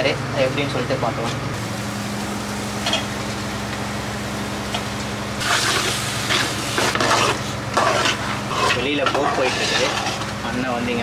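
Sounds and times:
boat engine hum: 0.2 - 10.9
metal spoon scraping a pot: 5.4 - 10.3.

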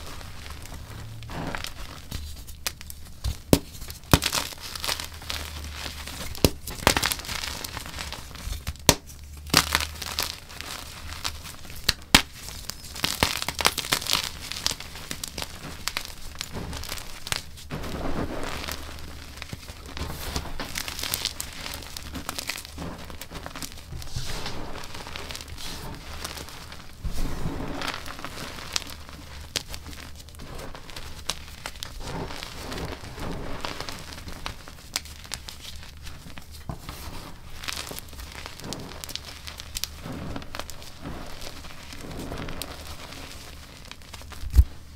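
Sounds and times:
chalk crunching in hands: 0.0 - 44.7.

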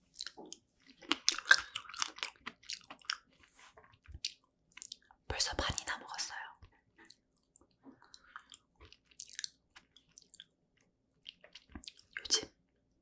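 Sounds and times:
person chewing close up: 0.1 - 5.2, 7.0 - 12.5.

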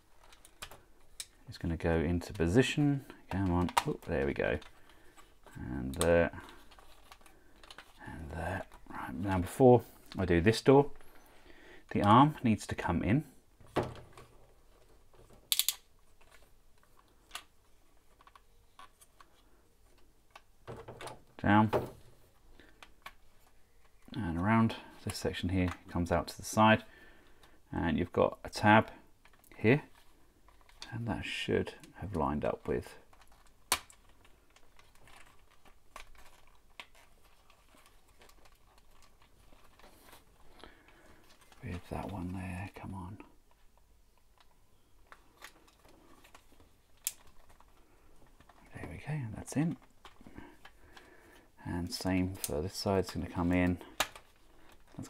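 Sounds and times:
plastic parts clicking and rubbing: 0.0 - 55.0
plastic toy parts clicking: 6.6 - 8.0, 15.5 - 17.5, 45.1 - 47.8.

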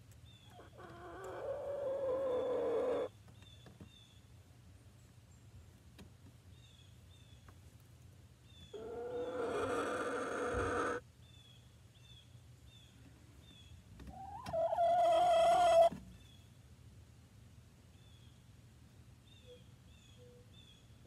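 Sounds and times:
hen calling: 0.5 - 3.1, 8.7 - 11.0, 14.1 - 16.0.

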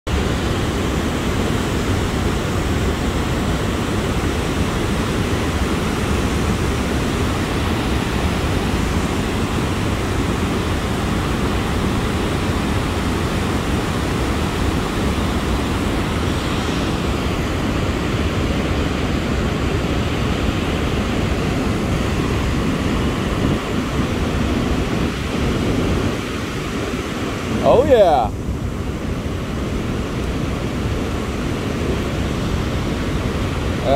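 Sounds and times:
river water rushing over dam: 0.1 - 33.9.

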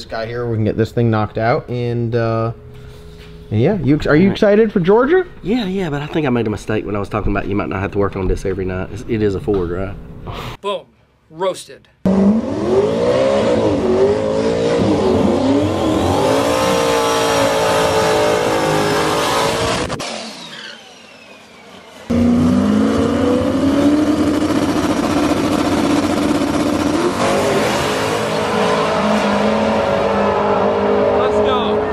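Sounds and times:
race car engines revving: 12.1 - 31.9.

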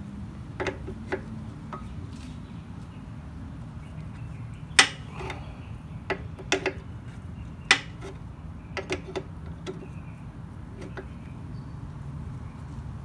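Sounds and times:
metal fitting clicks and taps: 0.6 - 1.9, 4.8 - 5.4, 6.1 - 6.9, 7.6 - 8.2, 8.8 - 9.9, 10.8 - 11.1.

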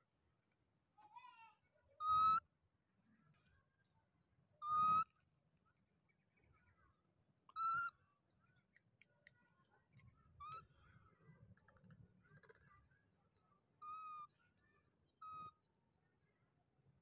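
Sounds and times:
baby monkey cooing: 2.0 - 2.4, 4.6 - 5.1, 7.5 - 7.9, 10.4 - 10.7, 13.8 - 14.4, 15.2 - 15.5.

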